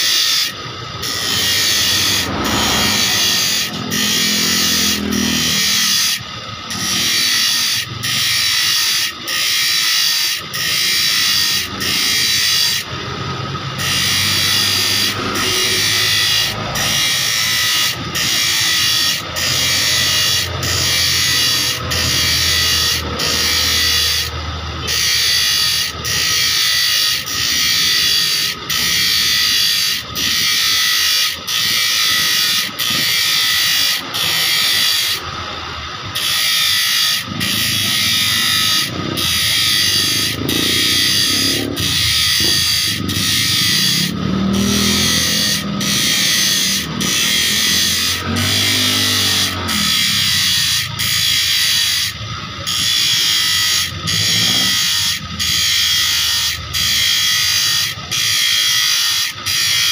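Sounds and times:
grinding wheel grinding steel blade: 0.0 - 59.9
motor humming: 0.5 - 8.6.

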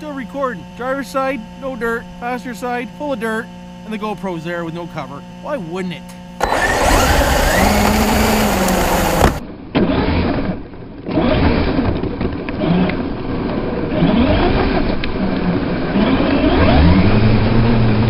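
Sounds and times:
electric motor whining: 6.4 - 9.4
tyres churning dirt and gravel: 6.4 - 9.4.

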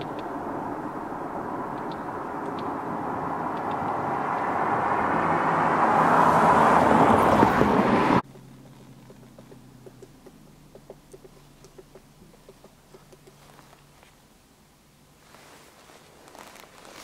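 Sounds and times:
motor vehicle passing: 0.0 - 14.1
faint light taps: 8.4 - 13.6.

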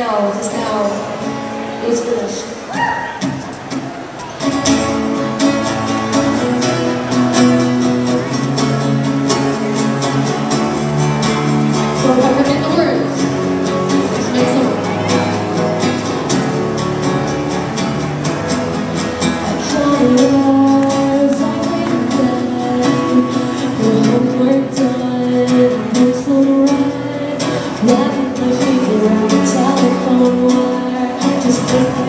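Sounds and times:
strummed acoustic guitars: 0.0 - 32.0
woman singing into microphone: 12.0 - 15.0, 19.4 - 32.0.

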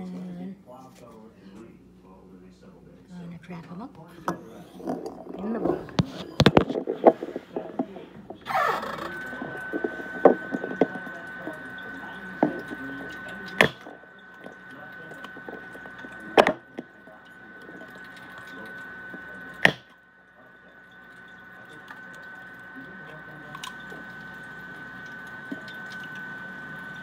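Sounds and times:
steady high tone: 4.4 - 27.0
egg dripping: 5.9 - 27.0.

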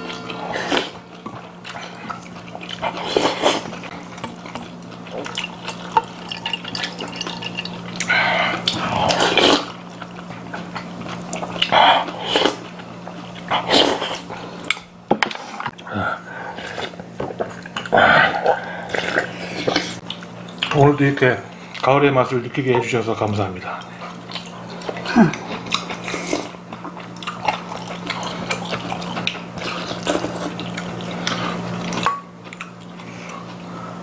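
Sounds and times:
steady low hum: 0.0 - 34.0
food chewing: 0.2 - 14.9, 16.5 - 20.9, 23.6 - 34.0
noodles and soup slurped: 6.8 - 9.8.

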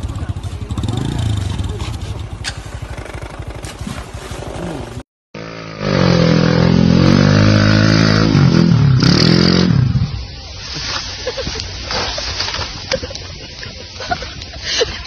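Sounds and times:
motorcycle engine puttering: 0.0 - 5.0
motorcycle engine revving hard: 0.0 - 10.1.

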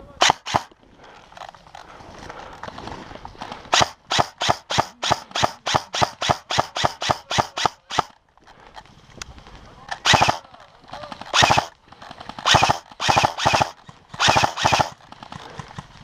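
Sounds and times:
airsoft rifle shots: 0.2 - 0.7, 3.6 - 8.2, 10.0 - 15.1.

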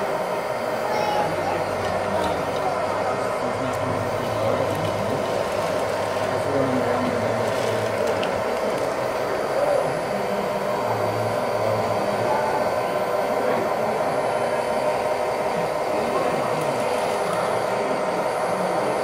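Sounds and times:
model loader motors whirring: 0.0 - 13.9.

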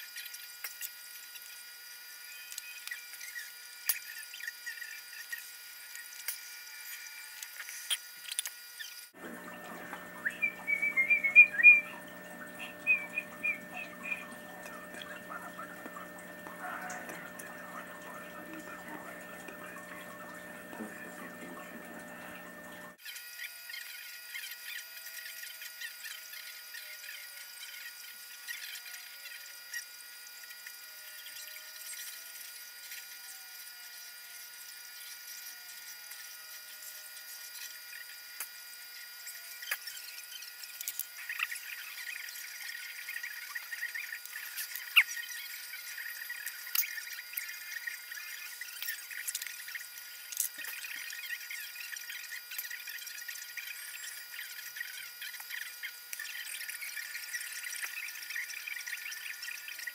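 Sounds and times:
faint high electronic whines: 0.0 - 59.9
steady background hum: 5.9 - 23.0
high whistled chirps: 9.3 - 16.4.

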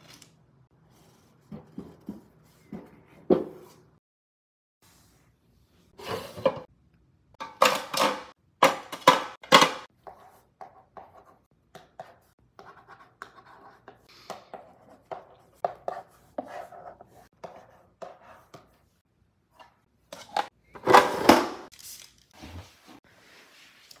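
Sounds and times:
chalk scratching on chalkboard: 10.0 - 18.9.

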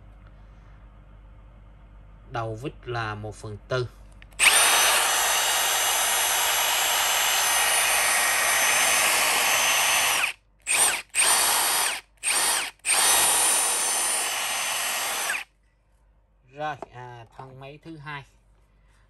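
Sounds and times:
impact driver motor whine: 4.4 - 15.5.

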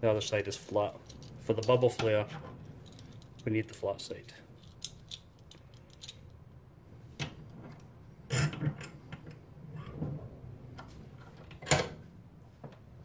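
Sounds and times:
metal clicks and clanks in a vise: 1.0 - 6.4.

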